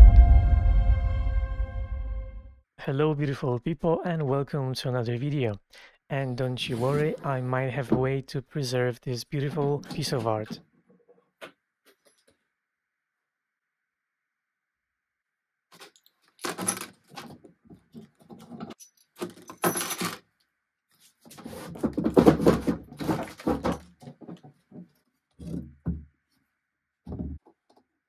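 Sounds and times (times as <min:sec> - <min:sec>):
wooden drawer knocking: 0:27.1 - 0:27.4.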